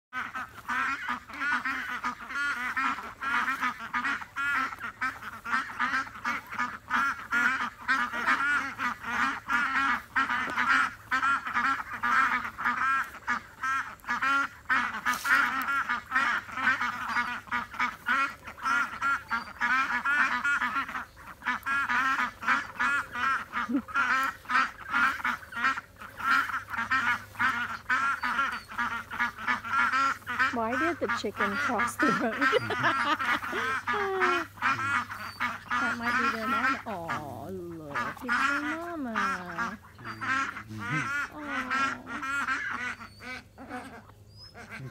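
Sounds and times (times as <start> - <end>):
ducks quacking: 0.1 - 44.9.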